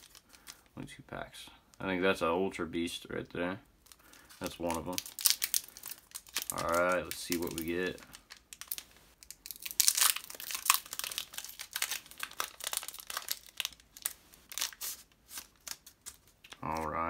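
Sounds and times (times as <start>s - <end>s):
foil wrapper crinkling and tearing: 0.0s - 0.7s, 3.8s - 17.0s
cards rustling: 3.8s - 17.0s.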